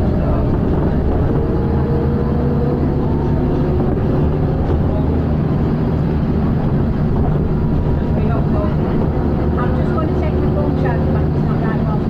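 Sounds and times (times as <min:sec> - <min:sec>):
bus engine drone: 0:00.0 - 0:12.0.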